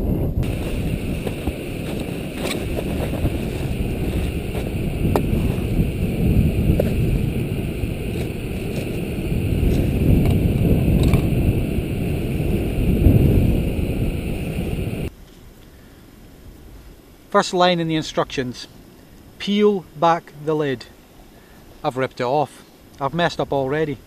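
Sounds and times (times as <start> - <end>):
wind buffeting microphone: 0.0 - 15.1
gas stove burner running: 0.4 - 15.1.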